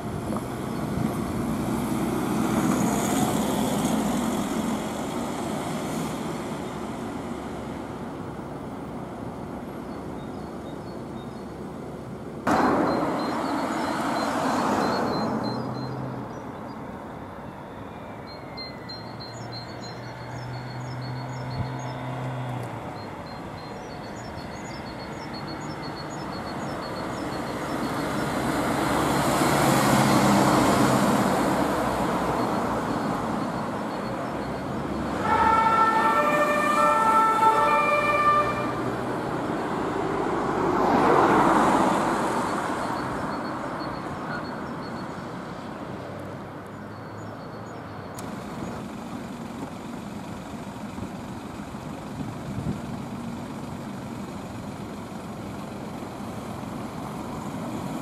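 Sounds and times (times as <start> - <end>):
passing traffic: 0.0 - 58.0
birds chirping: 7.7 - 38.6, 41.2 - 57.6
two-tone ambulance siren: 12.5 - 16.0, 17.0 - 21.3, 32.3 - 39.0.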